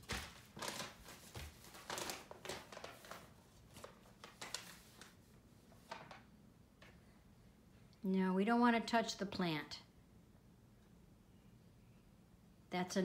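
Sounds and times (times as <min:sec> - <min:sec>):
paper rustling and crinkling: 0:00.0 - 0:06.2.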